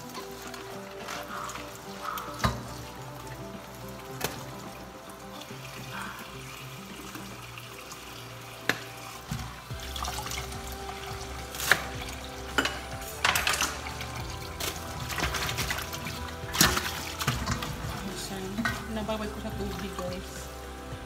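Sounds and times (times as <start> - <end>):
tap water running into a bowl: 0.0 - 21.0
metal bowl clinking and knocking: 8.7 - 20.4.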